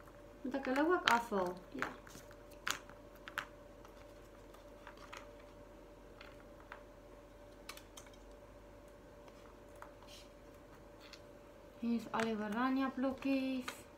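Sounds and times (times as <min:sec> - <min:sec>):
faint steady hum: 0:00.0 - 0:13.9.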